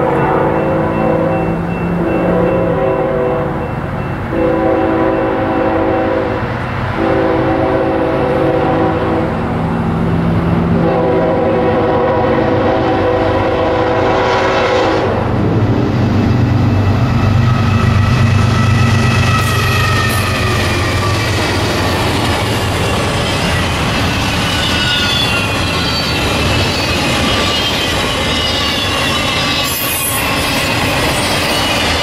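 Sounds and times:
train wheels: 0:00.0 - 0:32.0
locomotive air horn blasts: 0:02.2 - 0:03.5, 0:04.3 - 0:06.4, 0:07.0 - 0:09.4, 0:10.7 - 0:15.3
locomotive engines: 0:15.1 - 0:32.0.

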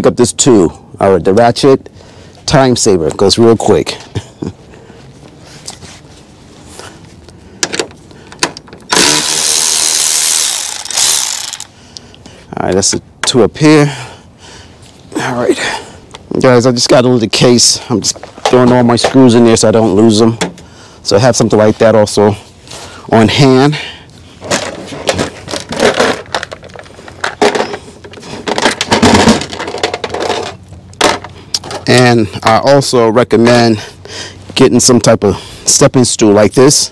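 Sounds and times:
electric ratchet motor whine: 0:08.9 - 0:11.7
ratchet clicks: 0:08.9 - 0:11.7
screws rattling in plastic case: 0:08.9 - 0:11.7, 0:24.4 - 0:31.8
handling knocks and scrapes: 0:24.4 - 0:32.0.

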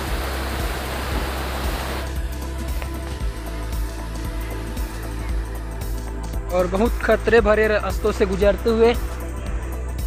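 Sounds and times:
rushing stream and waterfall: 0:00.0 - 0:03.1
music with low beat: 0:00.0 - 0:10.0.

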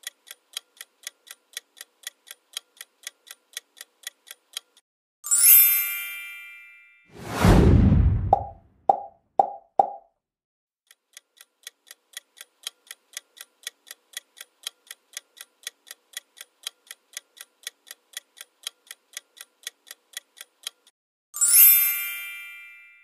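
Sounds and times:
clock ticking: 0:00.0 - 0:04.8, 0:10.9 - 0:20.9.

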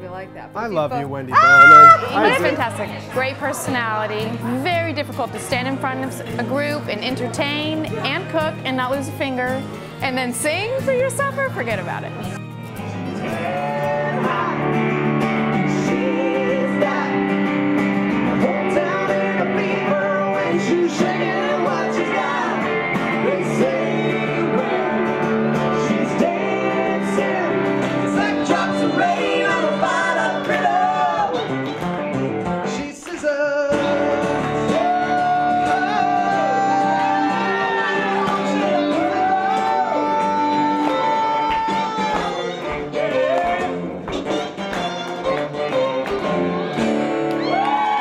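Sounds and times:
strummed acoustic guitar: 0:02.0 - 0:33.0, 0:33.6 - 0:47.4
man singing: 0:13.0 - 0:17.5, 0:18.2 - 0:31.5, 0:32.6 - 0:44.0.

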